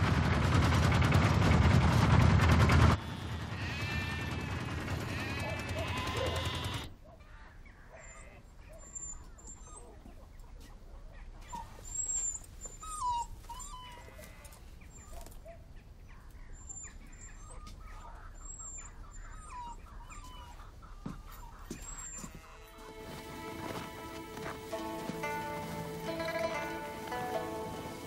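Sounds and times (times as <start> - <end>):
squeaky animal cries: 3.5 - 6.9, 21.2 - 22.7.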